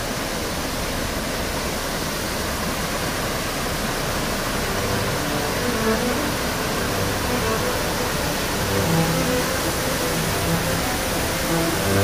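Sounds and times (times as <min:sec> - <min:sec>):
waterfall roaring: 0:00.0 - 0:12.0.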